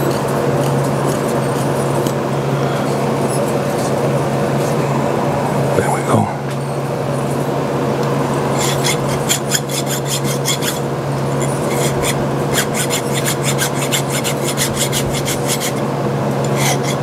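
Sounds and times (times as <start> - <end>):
hand file rasping on metal: 8.5 - 15.8, 16.4 - 17.0.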